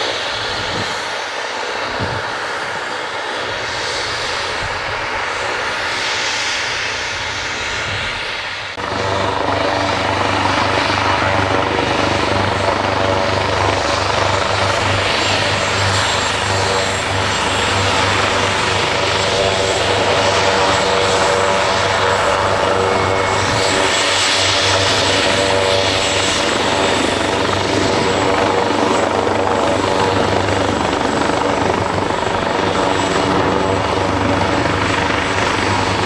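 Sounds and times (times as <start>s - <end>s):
helicopter turbine whine: 0.0s - 36.0s.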